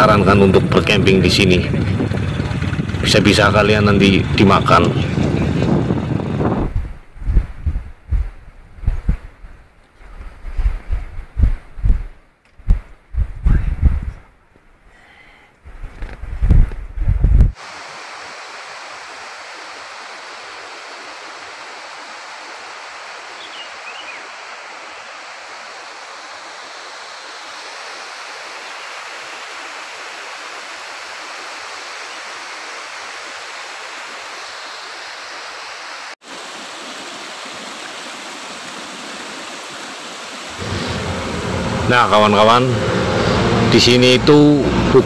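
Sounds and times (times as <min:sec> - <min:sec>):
loud low rumble: 0:00.4 - 0:06.8, 0:40.6 - 0:45.0
stream water rushing: 0:17.6 - 0:45.0.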